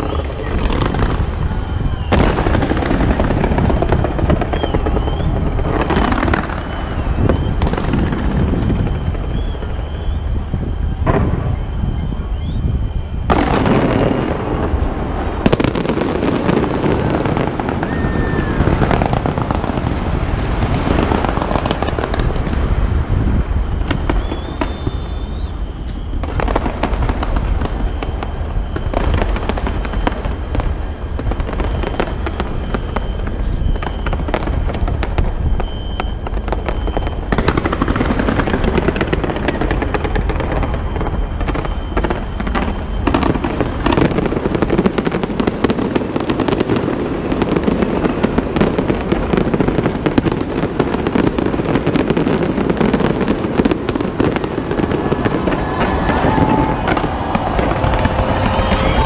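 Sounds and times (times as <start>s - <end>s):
fireworks crackling and banging: 0.0s - 59.0s
deep rumble: 55.0s - 59.0s.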